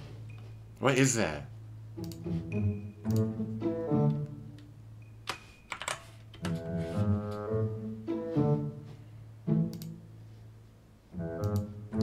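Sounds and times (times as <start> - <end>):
background music: 1.0 - 5.0, 6.4 - 10.4, 11.1 - 12.0
computer keyboard typing: 5.3 - 6.6.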